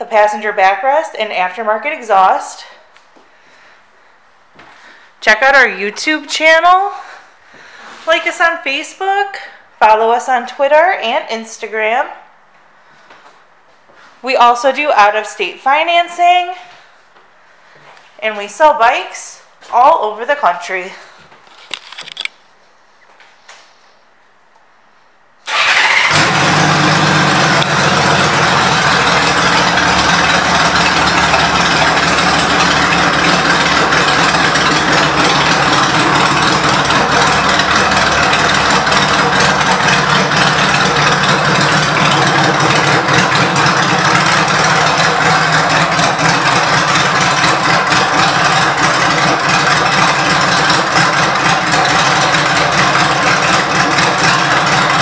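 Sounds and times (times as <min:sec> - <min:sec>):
motorcycle engine starting and idling: 0:25.4 - 0:55.0.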